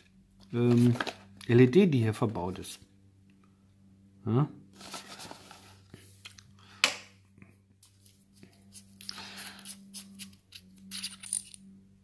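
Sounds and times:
cardboard scraping: 4.8 - 5.8
cardboard boxes rustling: 4.8 - 5.9.

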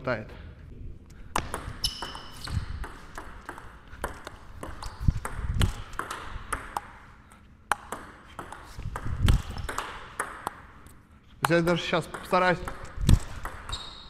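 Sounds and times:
table tennis ball clicking: 1.4 - 7.0, 7.7 - 10.7, 11.4 - 14.0.

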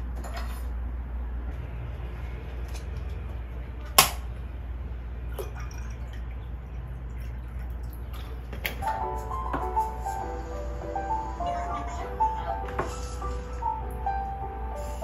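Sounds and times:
low hum: 0.0 - 15.0
light music: 8.7 - 15.0.

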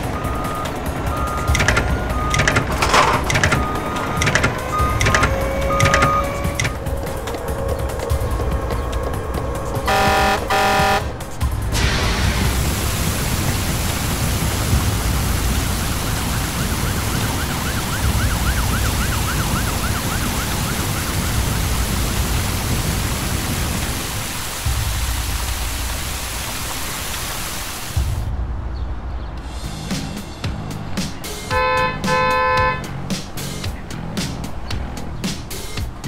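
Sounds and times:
faint wailing siren: 0.0 - 11.3, 15.2 - 22.3
rushing roar with deep rumble: 0.0 - 26.6.

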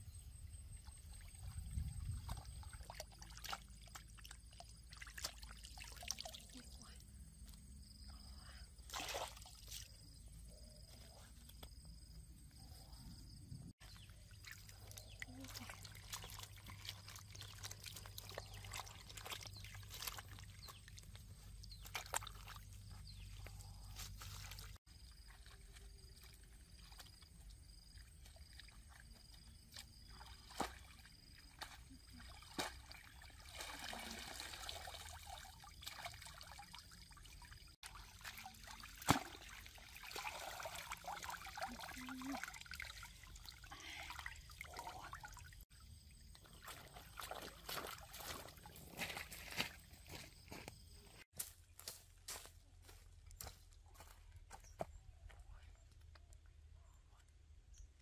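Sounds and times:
water trickling and sloshing: 0.1 - 12.2, 13.8 - 51.0.

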